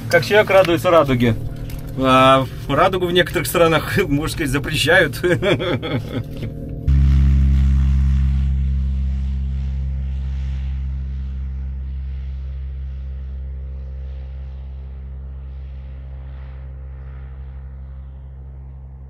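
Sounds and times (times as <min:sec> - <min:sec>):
electric motor and propeller drone: 0:05.2 - 0:19.0.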